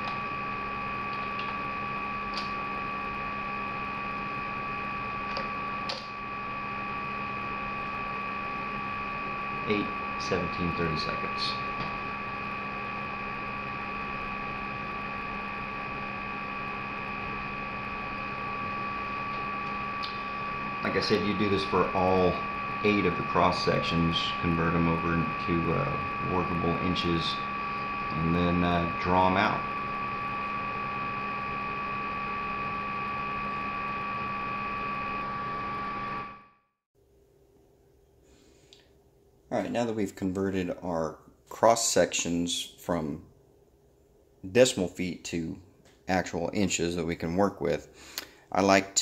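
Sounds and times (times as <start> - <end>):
thin steady whine: 0.0 - 36.6
electrical hum: 0.0 - 49.0.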